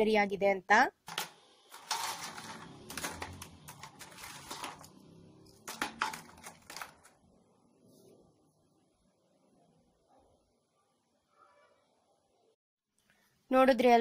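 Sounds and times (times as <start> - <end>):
sugar sticks rattling on steel plate: 1.1 - 7.1.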